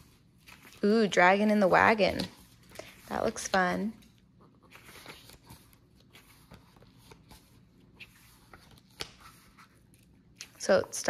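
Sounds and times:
paper pages rustling: 0:00.0 - 0:11.0
book handling clicks: 0:08.0 - 0:09.4.

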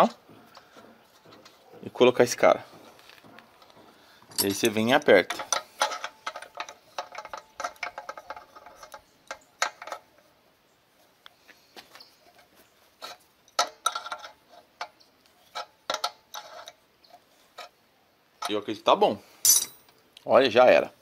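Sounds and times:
wrench clinking against metal fitting: 0:04.3 - 0:10.0, 0:19.4 - 0:20.0.

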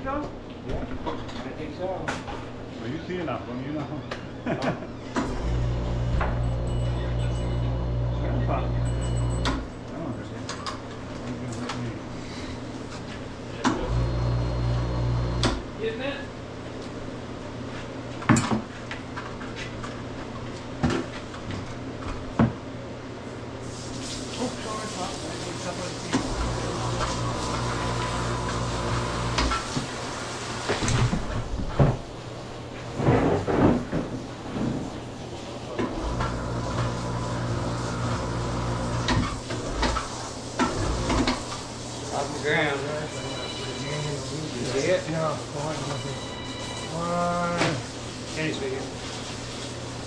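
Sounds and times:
steady low hum: 0:05.2 - 0:10.6.

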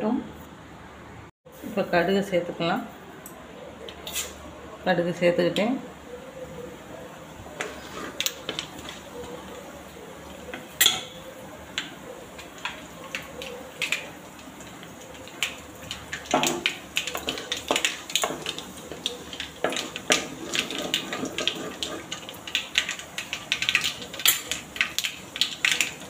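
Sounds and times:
faint sizzle: 0:04.0 - 0:26.0
seeds popping in hot oil: 0:07.5 - 0:26.0.

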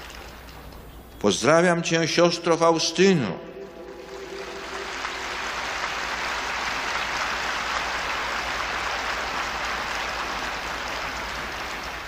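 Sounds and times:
large crowd applauding: 0:00.0 - 0:00.6, 0:03.8 - 0:12.0.

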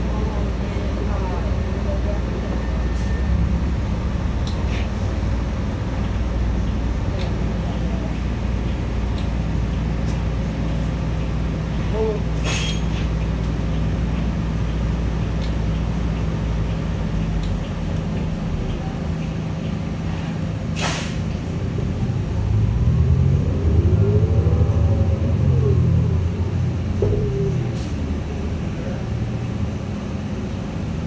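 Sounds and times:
bus engine idling: 0:00.0 - 0:31.0
air brake hisses: 0:12.4 - 0:13.0, 0:20.8 - 0:21.3.

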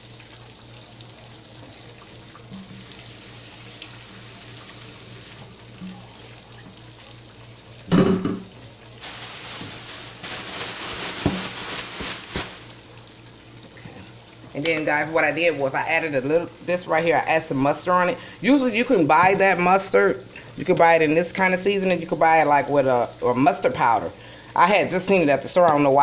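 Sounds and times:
meat sizzling in grease: 0:08.9 - 0:12.9.

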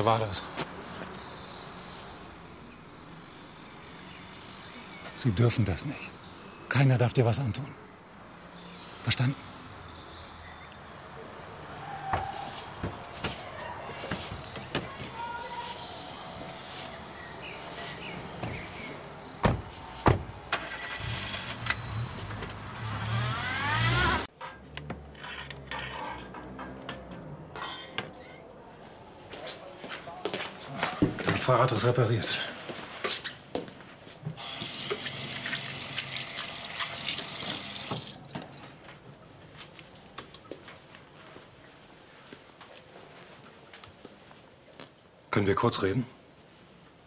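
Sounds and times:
car engine starting: 0:20.5 - 0:24.3
car pulling away: 0:20.5 - 0:24.3.

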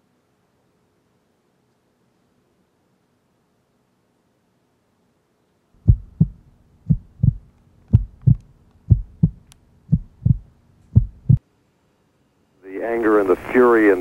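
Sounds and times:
heartbeat thumps: 0:05.8 - 0:11.4.

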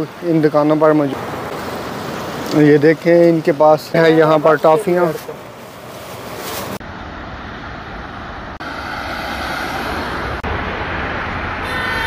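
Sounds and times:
road traffic rumble: 0:00.0 - 0:12.0
car horn toot: 0:11.6 - 0:12.0.

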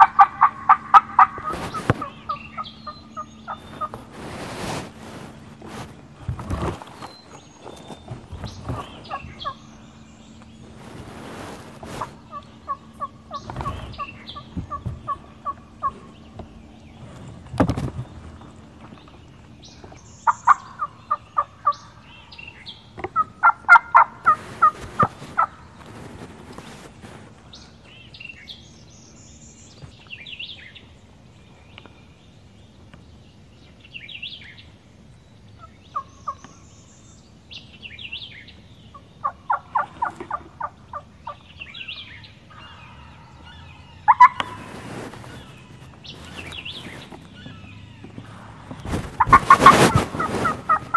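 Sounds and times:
turkey calling: 0:00.0 - 0:07.4, 0:08.4 - 0:17.2, 0:19.9 - 0:26.9, 0:35.6 - 0:36.6, 0:38.9 - 0:50.9
small birds chirping: 0:00.0 - 0:50.9.

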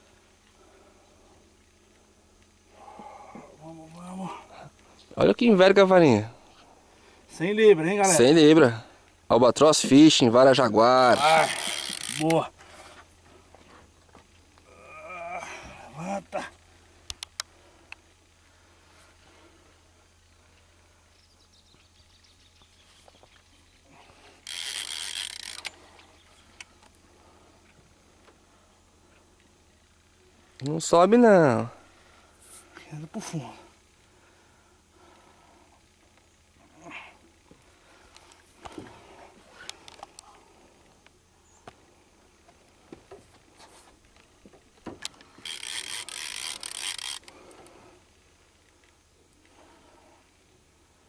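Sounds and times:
fishing reel drag buzzing: 0:11.0 - 0:13.0, 0:24.1 - 0:27.3, 0:45.0 - 0:47.9
faint clicks: 0:17.0 - 0:18.0.

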